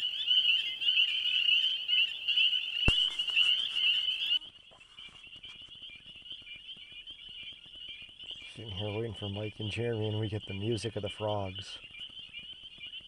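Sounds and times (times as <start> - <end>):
frogs chirping and trilling: 0.0 - 4.4, 7.2 - 13.0.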